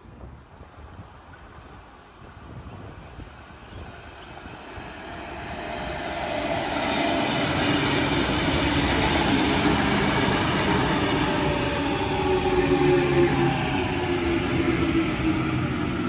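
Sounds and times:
train wheels rumbling on rail: 0.6s - 16.0s.

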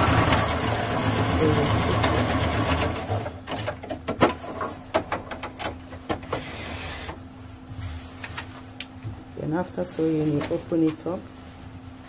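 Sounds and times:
sewing machine stitching: 0.0s - 3.4s.

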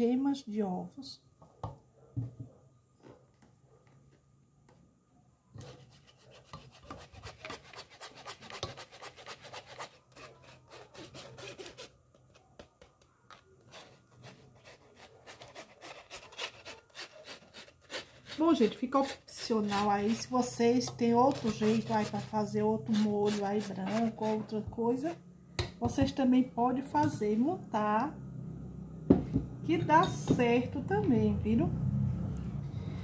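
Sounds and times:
rasping through mesh sieve: 21.2s - 24.5s.

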